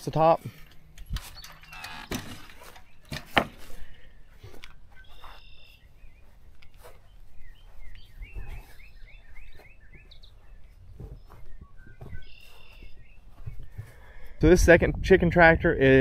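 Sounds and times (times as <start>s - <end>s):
birds chirping: 0.0s - 14.4s.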